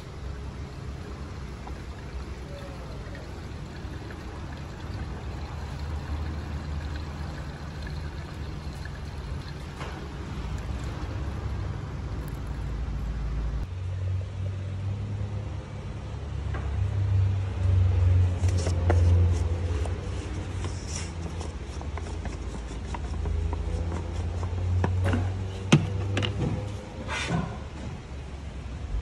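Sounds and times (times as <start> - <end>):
fluid pouring from plastic bottle: 0.0 - 12.7
steady low hum: 0.0 - 14.6.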